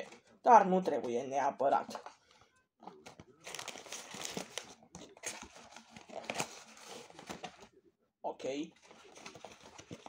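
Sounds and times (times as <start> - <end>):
paper food packaging crinkling: 2.9 - 7.7, 8.8 - 10.0.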